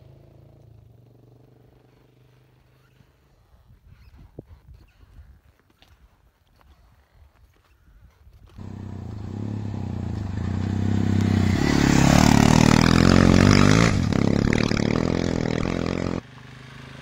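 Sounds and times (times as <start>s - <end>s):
motorcycle riding past: 8.6s - 17.0s.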